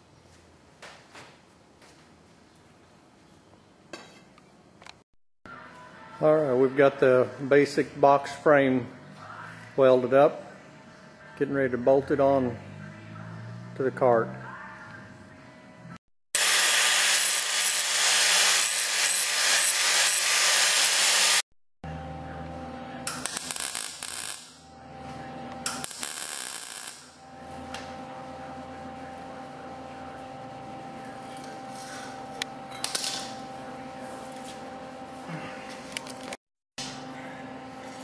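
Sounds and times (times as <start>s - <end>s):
power tool bursts: 16.4s - 21.4s
power tool running: 16.4s - 21.4s
steady hum: 21.9s - 38.0s.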